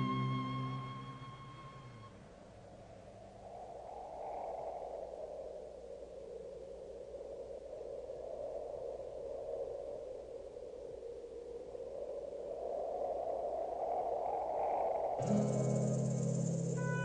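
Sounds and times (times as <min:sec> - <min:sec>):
faint low hum: 0:00.0 - 0:03.6
hollow rushing wind: 0:00.0 - 0:16.8.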